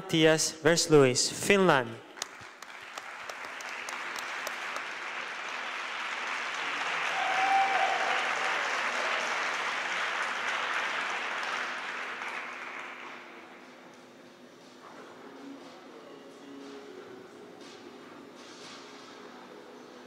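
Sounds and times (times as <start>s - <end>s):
audience applauding: 2.2s - 13.5s.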